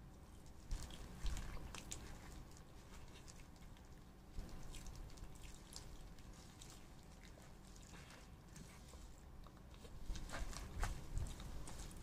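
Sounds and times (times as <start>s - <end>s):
wet crackles and clicks: 0.1s - 8.2s
plastic gloves crinkling: 0.2s - 12.0s.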